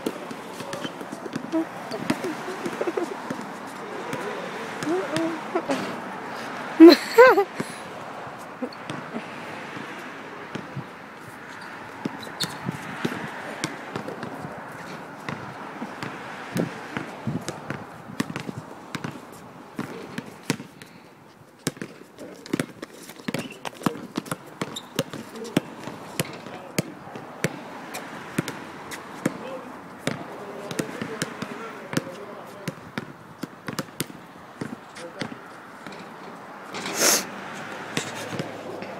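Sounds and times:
basketball bouncing on asphalt: 0:00.0 - 0:06.0, 0:07.4 - 0:21.0, 0:21.6 - 0:36.7, 0:37.5 - 0:38.9.

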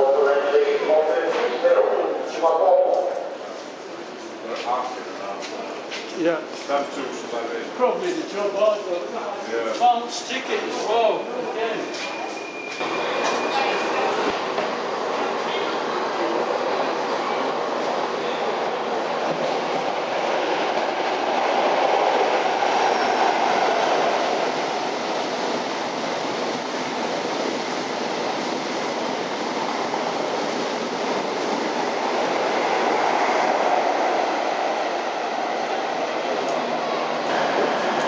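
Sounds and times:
train passing at speed: 0:00.0 - 0:38.0.

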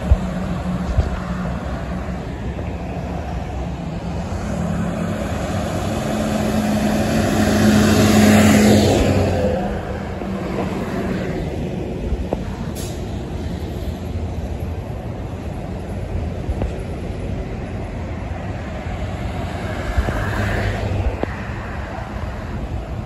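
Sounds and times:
highway traffic rumble: 0:00.0 - 0:23.0
truck passing close by: 0:00.0 - 0:23.0.

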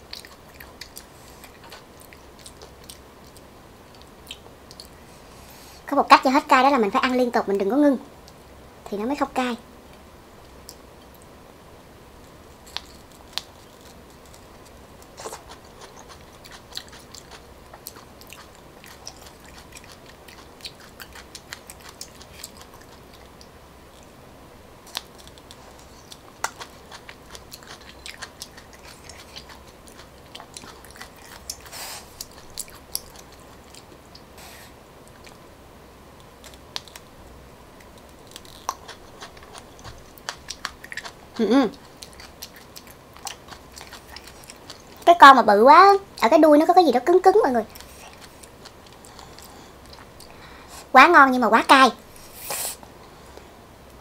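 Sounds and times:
close-up chewing: 0:00.0 - 0:05.1, 0:12.2 - 0:24.2, 0:24.8 - 0:34.4, 0:35.0 - 0:35.4, 0:36.2 - 0:45.1, 0:47.6 - 0:50.6.

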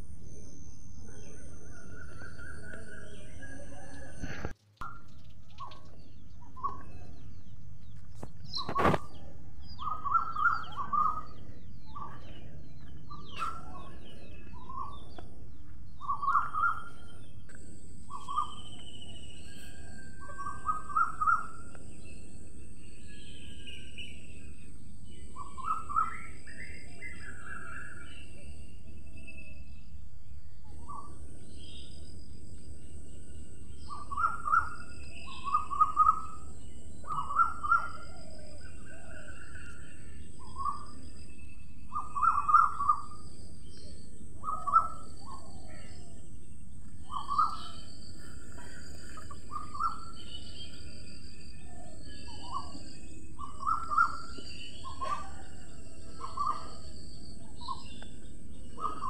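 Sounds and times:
short bird calls: 0:51.6 - 0:58.1.

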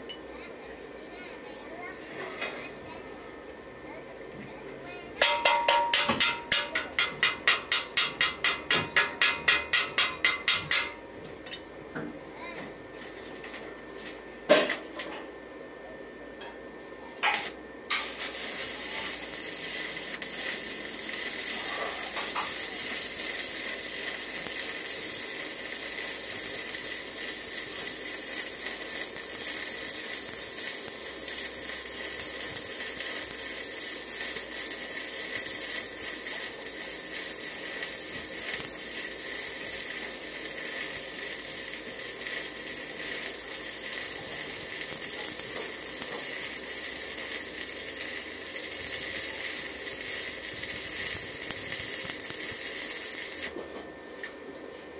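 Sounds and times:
welding arc crackling: 0:05.2 - 0:11.6, 0:17.2 - 0:53.6.

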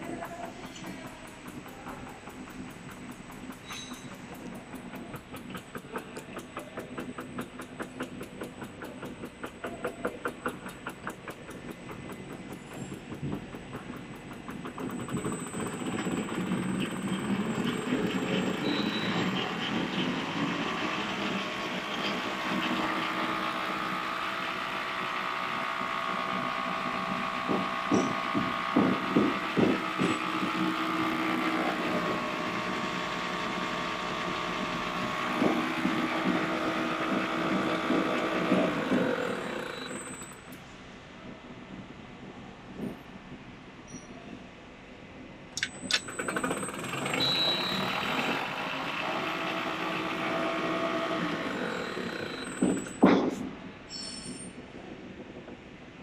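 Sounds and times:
label rewinding machine running: 0:00.0 - 0:40.6, 0:45.6 - 0:53.1
machine knocks: 0:21.4 - 0:40.2.

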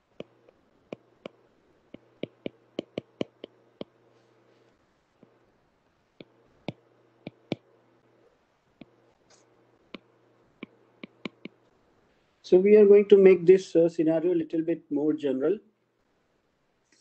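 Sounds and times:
faint low hum: 0:00.0 - 0:17.0
stylus clicking on glass screen: 0:06.2 - 0:07.7, 0:08.8 - 0:11.6.

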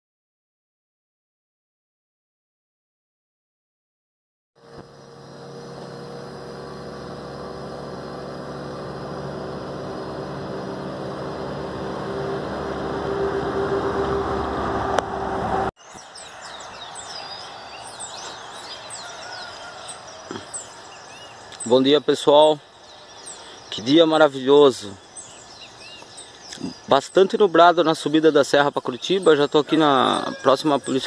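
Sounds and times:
vehicle engine hum and tyre noise: 0:04.6 - 0:23.6
birds chirping: 0:04.6 - 0:31.0.

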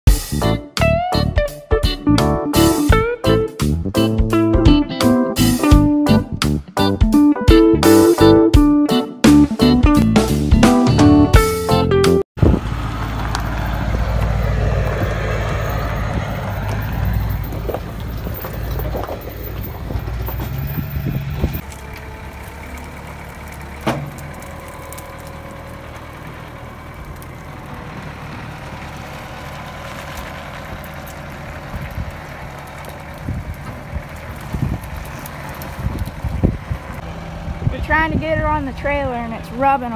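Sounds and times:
truck engine idling: 0:12.4 - 0:39.9.

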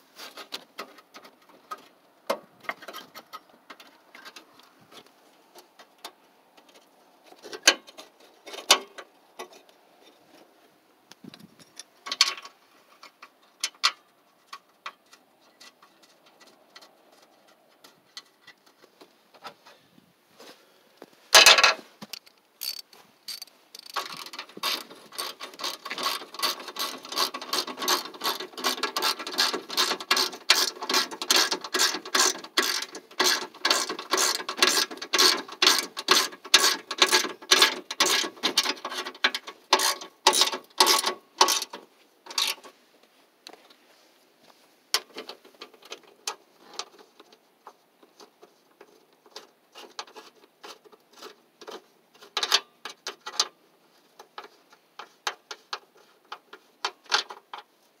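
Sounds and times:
ratchet wrench clicking: 0:22.2 - 0:38.2, 0:39.8 - 0:41.6.

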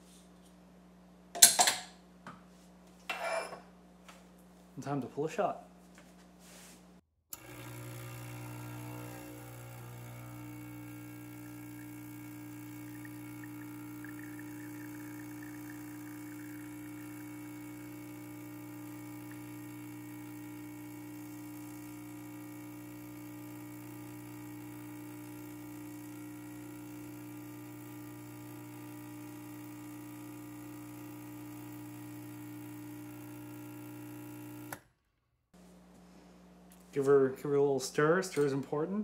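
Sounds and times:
espresso machine pump humming: 0:07.4 - 0:34.8.

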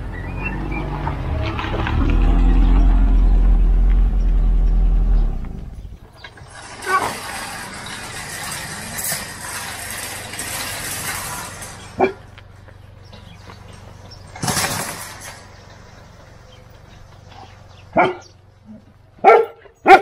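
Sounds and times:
car engine running low: 0:00.7 - 0:06.2
metallic rattling and scraping: 0:01.2 - 0:19.1
sharp clatter: 0:01.3 - 0:17.8.

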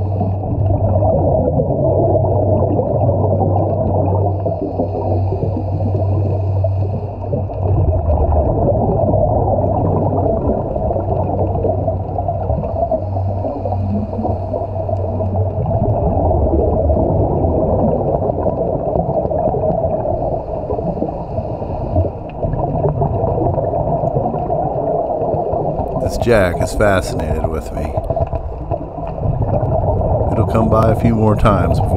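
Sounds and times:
underwater low wash: 0:00.0 - 0:31.9
faint underwater hiss: 0:09.7 - 0:15.7, 0:19.3 - 0:22.5.

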